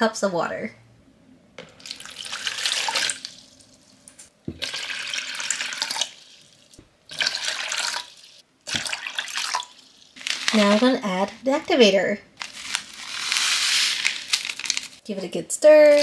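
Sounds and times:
water pouring into plastic bucket: 1.7s - 3.4s, 4.6s - 6.3s, 7.1s - 10.8s.

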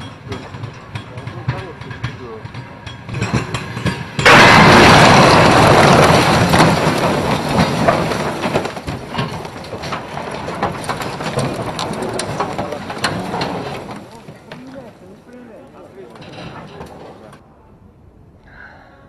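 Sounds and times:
cracks and clatters: 0.0s - 17.4s
metal crunching and rumbling: 0.0s - 17.4s
loud crash impact: 3.1s - 14.9s.

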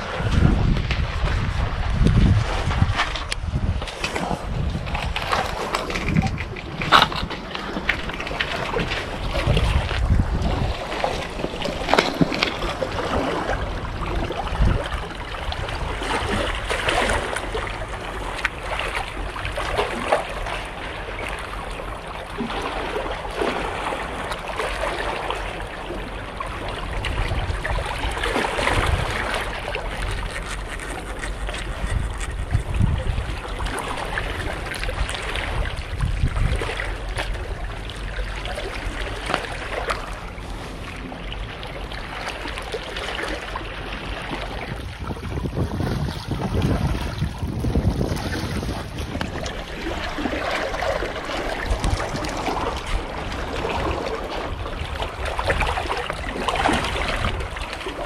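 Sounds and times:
wind gusting on microphone: 0.0s - 17.4s, 26.9s - 37.4s, 44.4s - 57.7s
seawater sloshing among concrete: 0.0s - 58.0s.

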